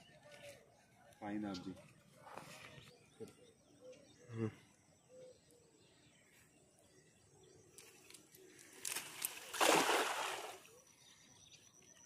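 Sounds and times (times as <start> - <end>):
net splashing on water: 8.8 - 10.7.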